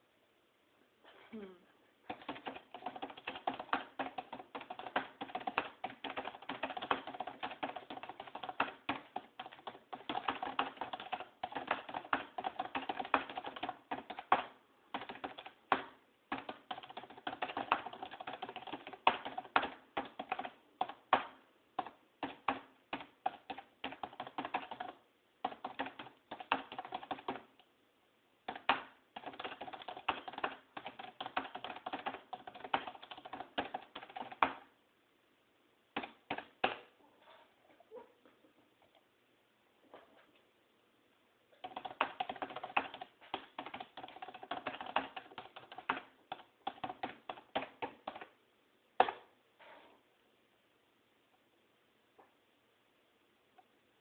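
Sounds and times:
fast typing on keyboard: 2.1 - 27.7, 28.4 - 34.7, 36.0 - 36.8, 41.6 - 48.4.

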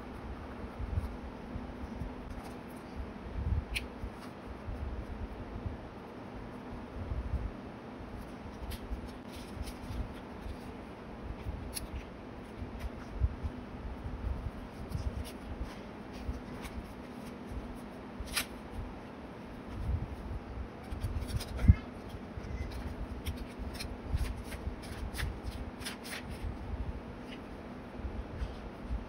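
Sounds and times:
paper rustling and sliding: 22.6 - 26.6.

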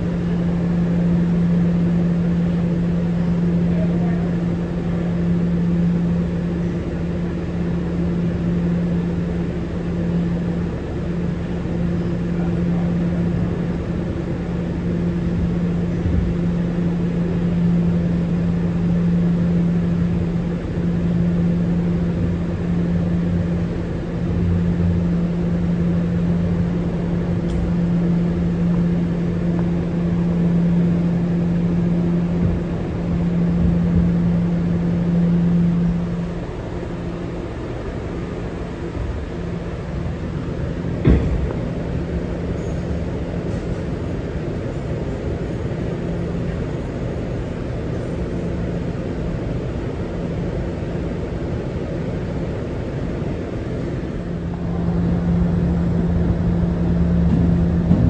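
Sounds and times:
subway car hum: 0.0 - 58.0
wheels rumbling on rails: 0.0 - 58.0.

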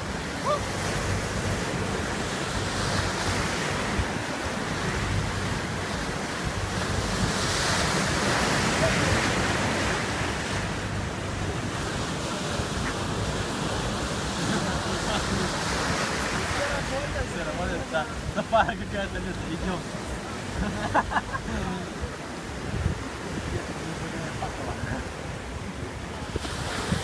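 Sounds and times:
waves breaking: 0.0 - 27.0.

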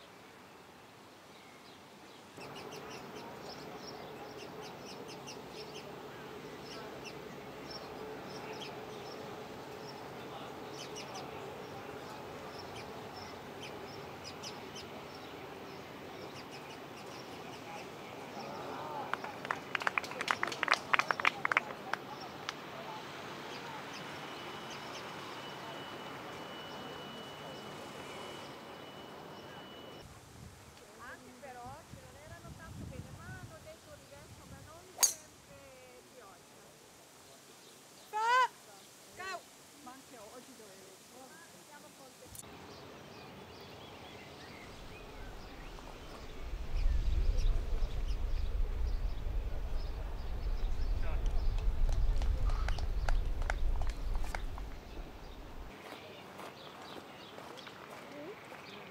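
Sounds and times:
birds chirping: 0.0 - 22.5, 23.4 - 30.0, 40.2 - 58.9
open air hiss: 0.0 - 55.8
loud low rumble: 44.7 - 55.7.

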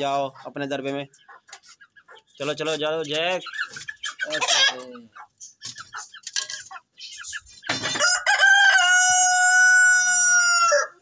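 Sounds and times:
chickens clucking: 0.0 - 11.0
rooster crowing: 8.0 - 11.0.

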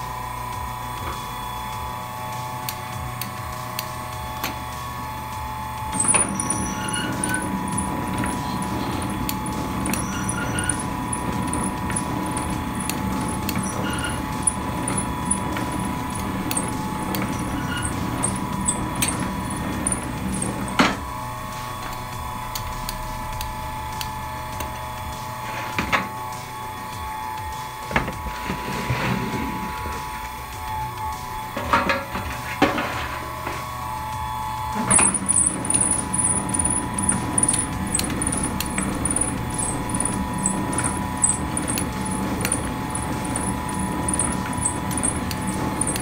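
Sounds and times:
steady hum: 0.0 - 46.0
machine rumbling and ticking: 0.8 - 28.5, 33.3 - 46.0
machine stopping clack: 5.8 - 28.2, 34.6 - 46.0.

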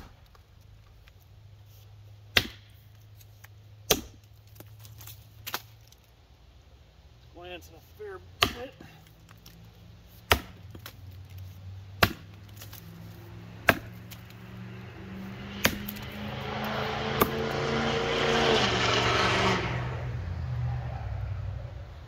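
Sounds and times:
axe chopping wood: 0.0 - 0.4, 2.3 - 5.8, 8.4 - 14.4, 15.5 - 17.6.

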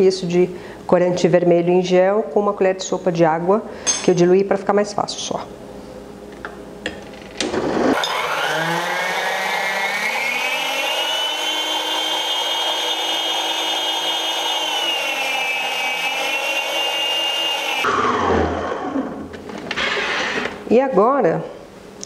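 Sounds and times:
stand mixer motor whining: 7.4 - 20.5.

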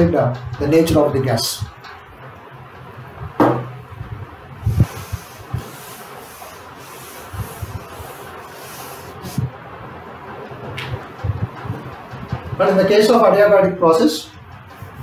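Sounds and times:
low knocks of board: 3.4 - 3.8
chalkboard being wiped: 4.6 - 9.5.

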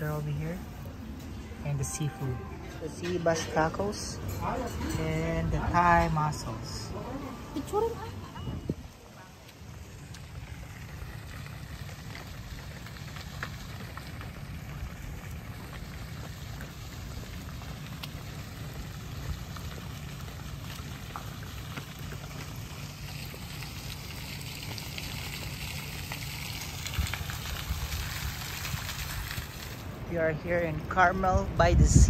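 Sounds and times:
wind buffeting microphone: 8.4 - 9.0, 26.8 - 29.8, 31.0 - 32.0
fountain water splashing: 8.8 - 32.0.

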